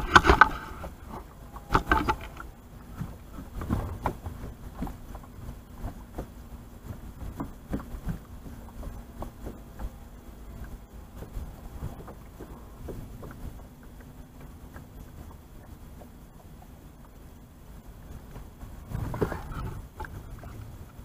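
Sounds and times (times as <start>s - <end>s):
faint steady hum: 0.0s - 21.0s
knocks and taps on boat deck: 3.0s - 5.3s, 5.9s - 10.0s.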